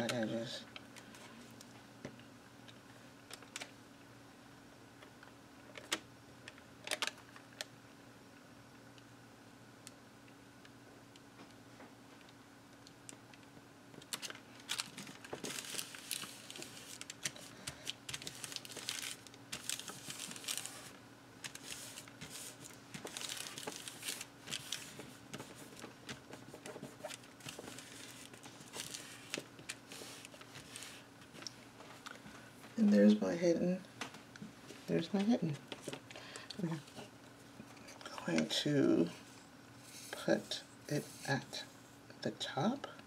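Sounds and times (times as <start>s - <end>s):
paper rustling and crinkling: 14.0s - 32.0s.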